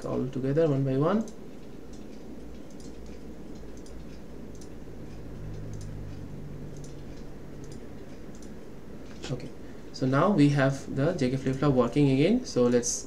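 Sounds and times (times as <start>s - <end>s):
low background hum: 0.0s - 13.0s
computer mouse clicking: 1.2s - 9.3s.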